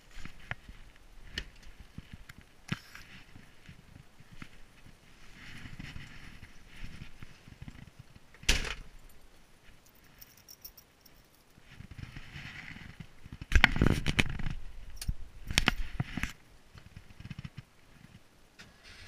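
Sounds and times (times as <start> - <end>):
keys jingling: 9.8 - 11.6.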